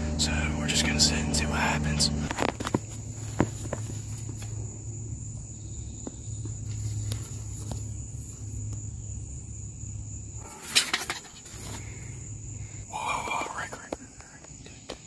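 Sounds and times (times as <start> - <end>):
low rumble: 0.0 - 10.4
insects droning: 0.0 - 15.0.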